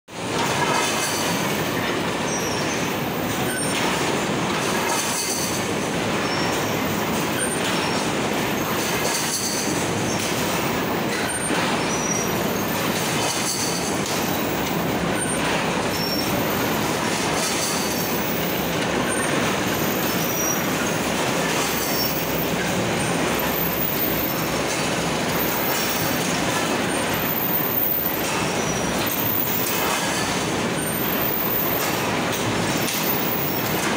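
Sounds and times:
netting machine clattering: 6.4s - 33.9s
high-pitched metallic squeaks: 17.5s - 24.5s.

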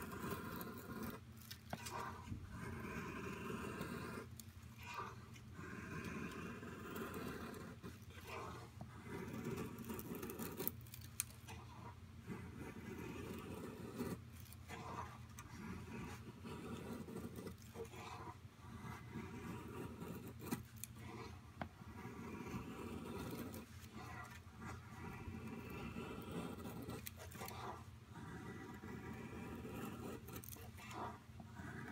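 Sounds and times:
knife scraping wood: 0.0s - 31.9s.

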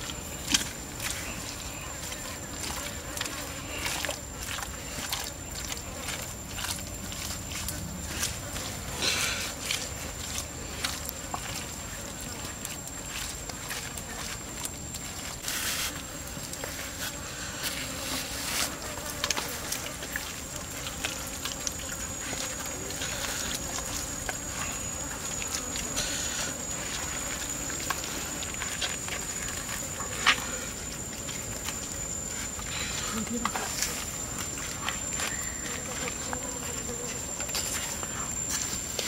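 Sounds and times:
hands squelching in marinade: 0.0s - 16.6s
high-pitched insect drone: 0.0s - 39.0s.

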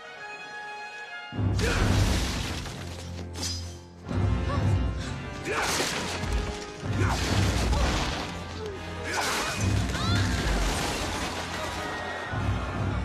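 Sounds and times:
orchestral action score: 0.0s - 13.0s
wood breaking: 1.6s - 3.4s, 5.5s - 12.1s.

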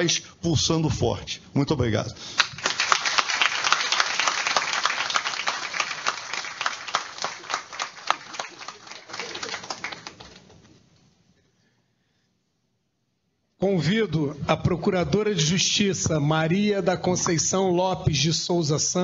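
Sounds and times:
audience applauding: 2.3s - 10.7s.

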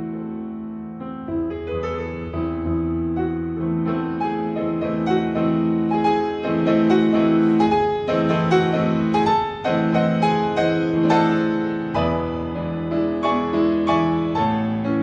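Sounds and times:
piano-like background music: 0.0s - 15.0s.

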